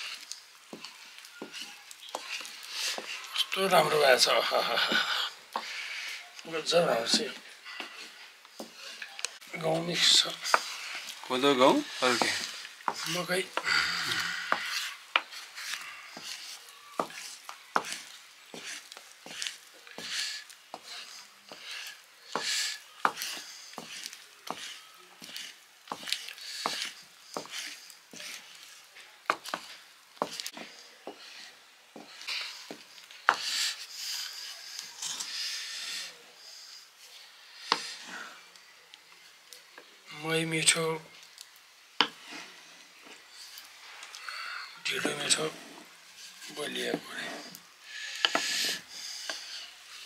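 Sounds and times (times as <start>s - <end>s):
scraping of thick dough: 14.2s - 36.2s, 44.9s - 50.0s.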